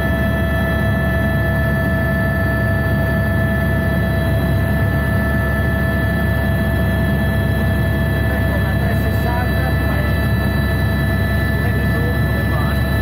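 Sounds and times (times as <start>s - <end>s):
helicopter rotor and engine rumble: 0.0s - 13.0s.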